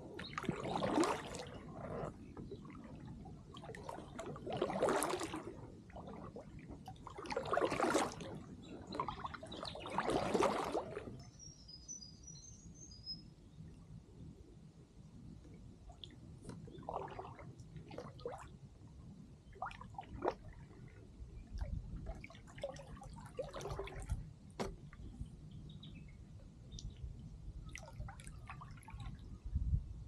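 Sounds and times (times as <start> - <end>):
kayak paddle splashing water: 0.0 - 11.2, 16.5 - 18.5, 19.6 - 25.3.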